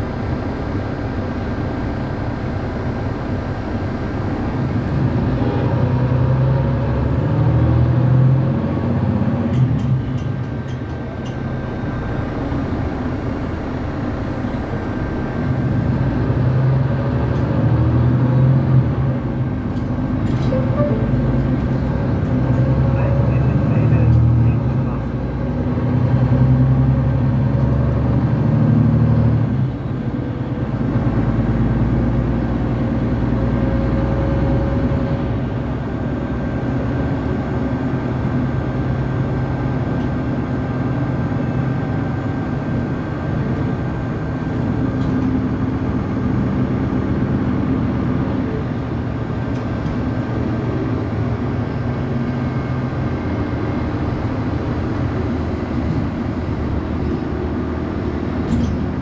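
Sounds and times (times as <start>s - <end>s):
bus engine droning: 0.0s - 59.0s
tyre and road noise: 15.4s - 59.0s.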